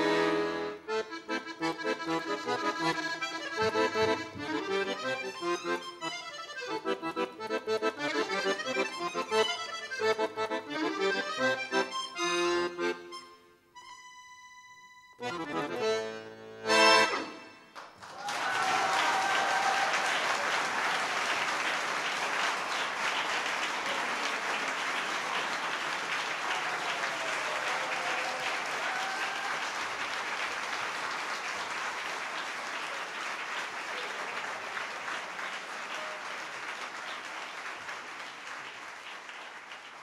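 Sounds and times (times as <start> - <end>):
audience applauding: 17.7 - 40.0.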